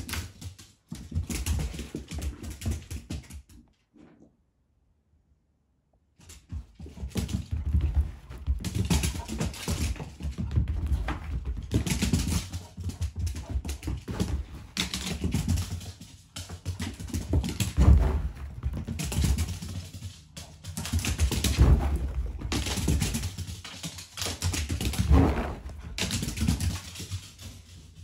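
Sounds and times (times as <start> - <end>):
dog claws clicking on wood floor: 6.2 - 17.9, 22.4 - 28.0.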